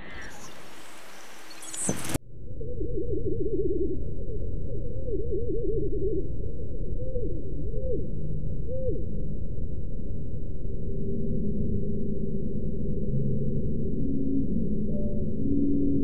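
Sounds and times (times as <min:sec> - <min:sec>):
slowed-down bird song whistles: 0:01.4 - 0:06.3, 0:06.9 - 0:09.0
steady low rumble: 0:02.0 - 0:16.0.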